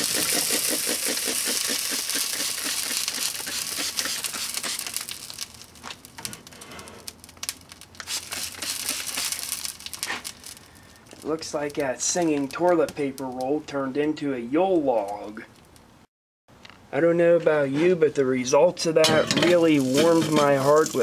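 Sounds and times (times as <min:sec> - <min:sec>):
plastic burning crackling hiss: 0:00.0 - 0:13.6, 0:19.6 - 0:21.0.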